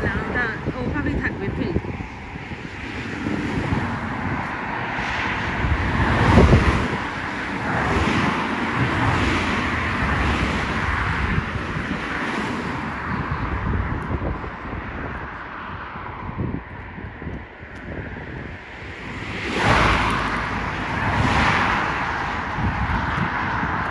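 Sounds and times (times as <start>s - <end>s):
wind noise on microphone: 0.0s - 23.9s
car passing by: 1.4s - 17.0s, 18.2s - 23.9s.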